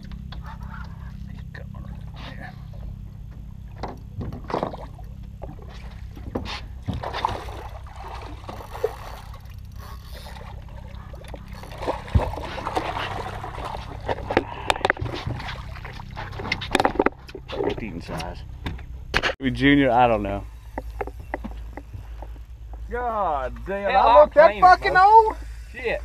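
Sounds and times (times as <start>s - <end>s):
steady low hum: 0.0s - 26.0s
fish splashing in water: 6.9s - 9.6s, 10.2s - 16.4s.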